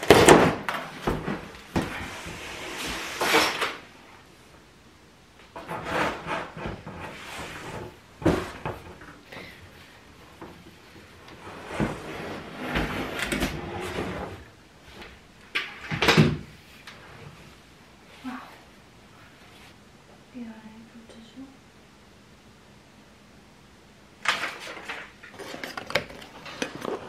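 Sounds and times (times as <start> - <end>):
wood scraping against cardboard: 5.6 - 7.9.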